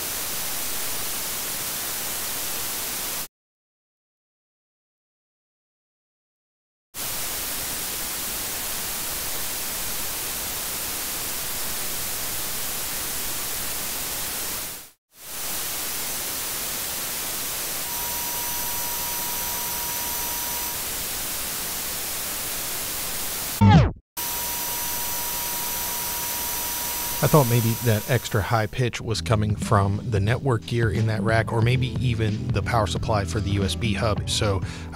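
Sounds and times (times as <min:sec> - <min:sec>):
preamp hiss: 0:00.0 - 0:03.3, 0:07.0 - 0:23.6, 0:24.2 - 0:28.8
high-pitched tones: 0:17.9 - 0:20.8, 0:23.7 - 0:28.4.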